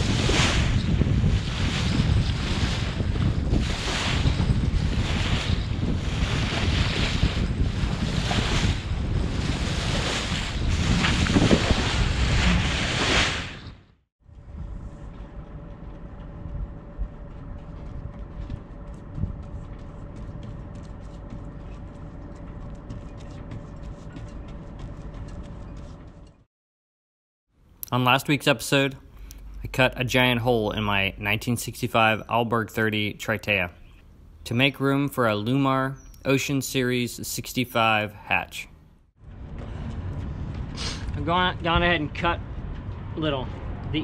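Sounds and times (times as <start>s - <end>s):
water rushing past hull: 0.0s - 13.6s
wind buffeting microphone: 0.0s - 26.2s, 39.2s - 44.0s
steady hum: 14.3s - 26.4s.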